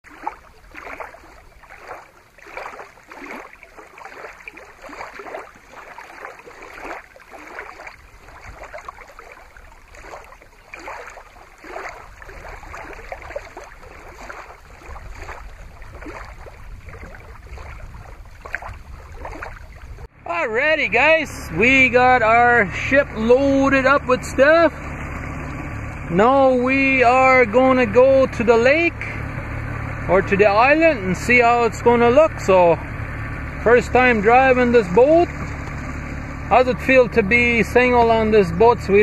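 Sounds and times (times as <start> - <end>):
waves lapping on rocks: 0.0 - 25.6
wind rumble on microphone: 4.8 - 20.1.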